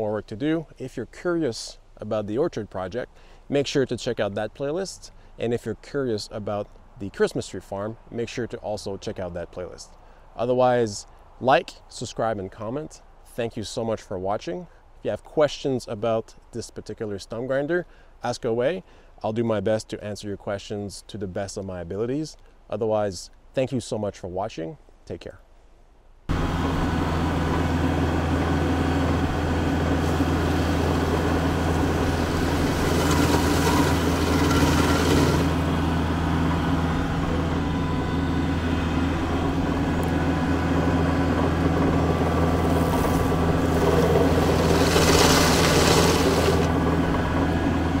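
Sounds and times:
stump grinder grinding: 26.3 - 48.0
tractor engine running: 26.3 - 48.0.

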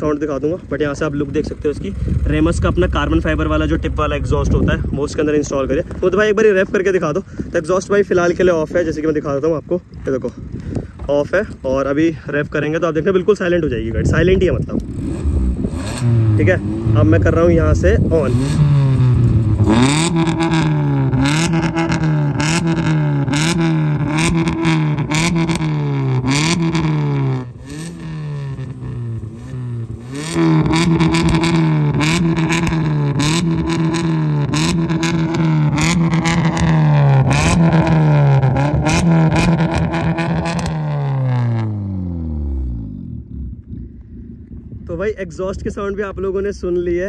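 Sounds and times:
car engine revving: 0.0 - 7.1, 14.4 - 44.8.

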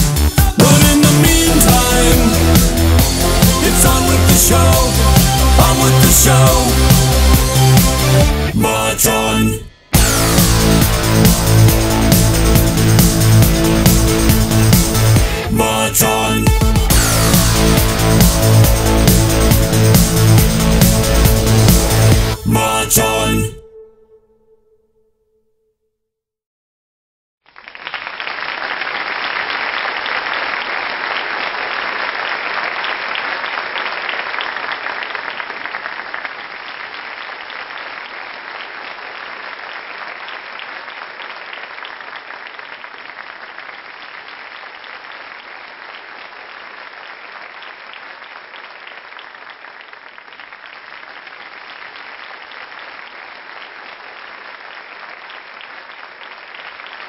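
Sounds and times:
crowd applause: 0.0 - 9.2, 10.0 - 23.5, 27.6 - 57.0.

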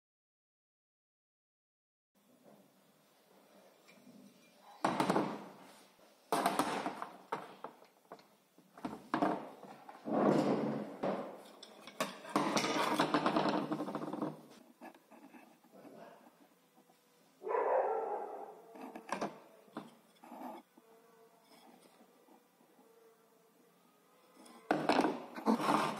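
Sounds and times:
tools clattering on workbench: 11.0 - 14.4.

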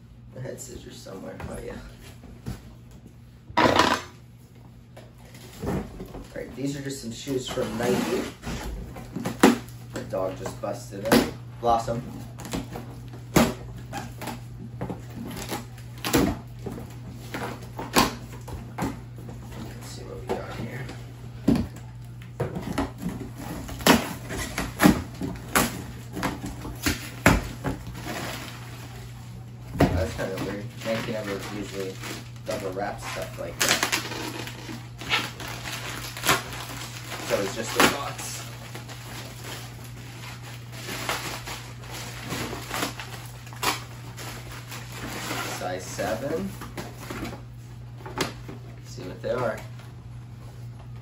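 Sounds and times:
plastic bag rustling and crinkling: 27.5 - 47.4.

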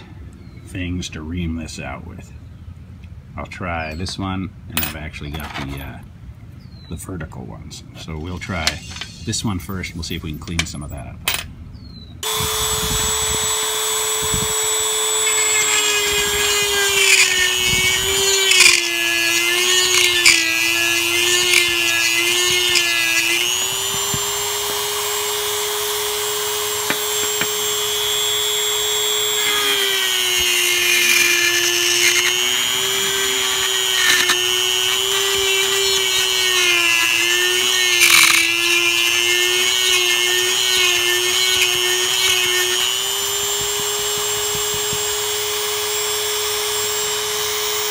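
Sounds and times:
rotary tool high whine: 12.2 - 47.9
bit scraping and clicking: 14.5 - 24.4, 29.0 - 45.1.

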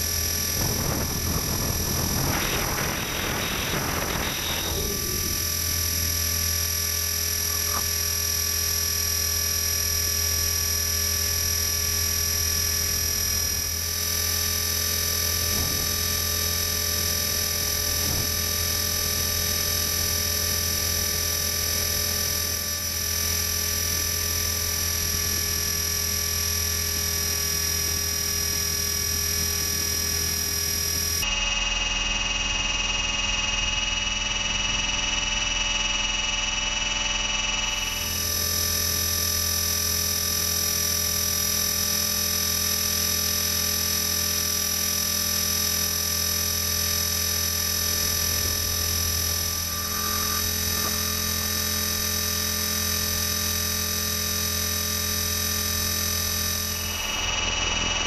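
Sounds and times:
electric motor whining: 0.0 - 10.0, 11.2 - 31.2, 44.5 - 58.0
rotor drone: 0.0 - 58.0.

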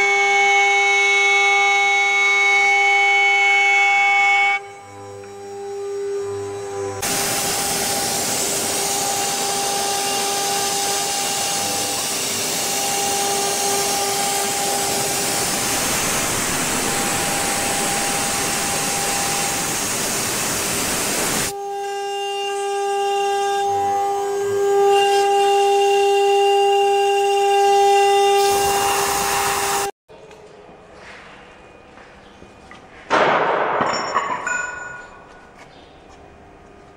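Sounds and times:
router spindle whining: 4.1 - 29.9
rushing noise of wood cutting: 5.5 - 21.6, 22.5 - 29.9.

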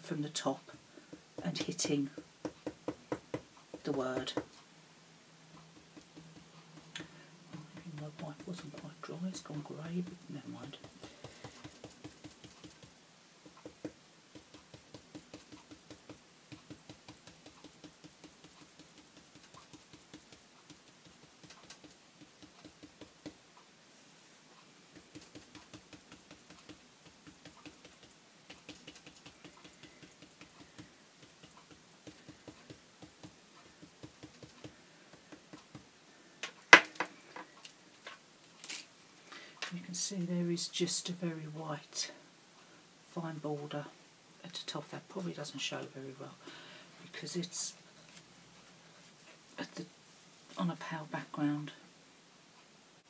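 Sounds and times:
paintbrush dabbing taps: 1.1 - 4.6, 5.8 - 23.4, 24.9 - 35.9.

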